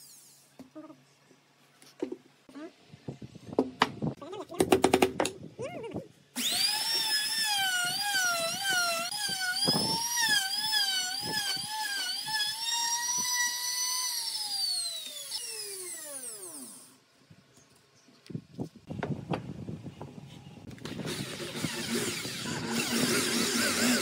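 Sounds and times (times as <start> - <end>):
trim router cutting wood: 6.4 - 16.9, 20.9 - 24.0.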